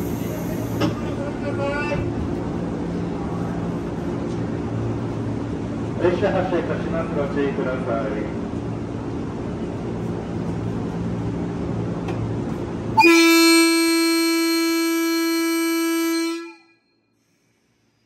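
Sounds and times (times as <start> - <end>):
standing train humming: 0.0 - 16.8
train horn blast: 13.0 - 16.9.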